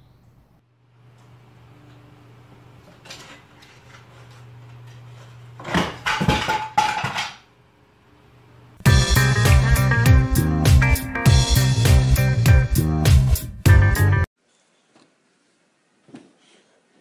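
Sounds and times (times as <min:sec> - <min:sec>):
lamp crashing to floor: 0:05.6 - 0:07.4.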